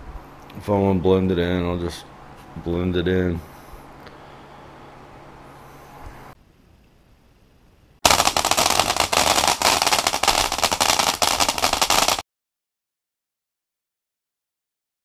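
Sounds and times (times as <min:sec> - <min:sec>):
firework crackling pops: 0:08.0 - 0:12.2.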